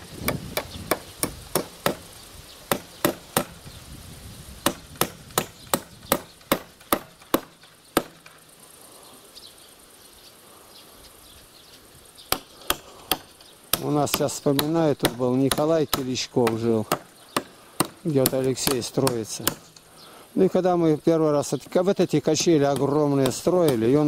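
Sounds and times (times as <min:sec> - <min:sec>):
hammer driving nails into wood: 0:04.6 - 0:08.4, 0:12.3 - 0:19.8.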